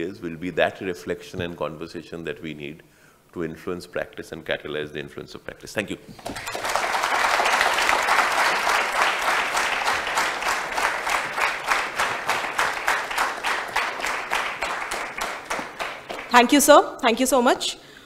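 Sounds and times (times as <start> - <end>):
audience applauding: 6.2 - 16.7.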